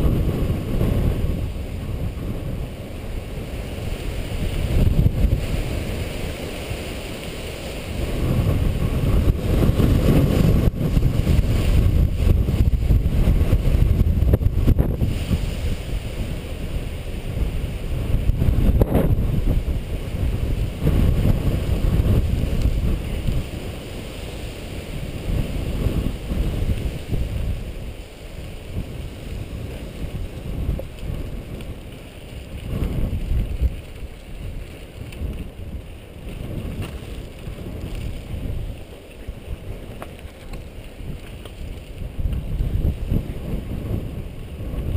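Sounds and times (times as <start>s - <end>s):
bike tyres rumbling on rocky dirt: 0.0s - 44.9s
wind buffeting microphone: 0.0s - 44.9s
bike knocking over bumps: 36.2s - 38.2s.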